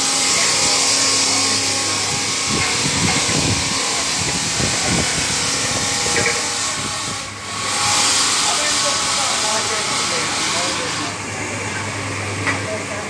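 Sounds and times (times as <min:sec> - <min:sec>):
machine hiss and hum: 0:00.0 - 0:13.0.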